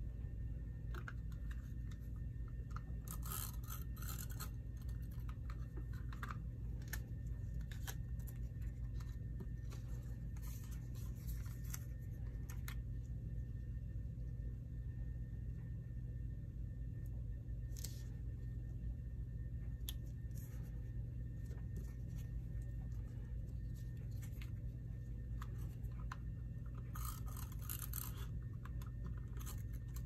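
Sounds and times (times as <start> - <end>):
steady low hum: 0.0 - 30.0
card stock rustling and clicking: 0.9 - 12.9, 21.5 - 30.0.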